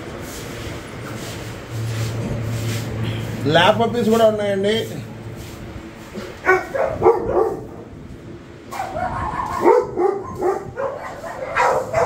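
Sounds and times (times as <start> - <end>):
puppies barking: 6.2 - 7.9, 8.7 - 12.0.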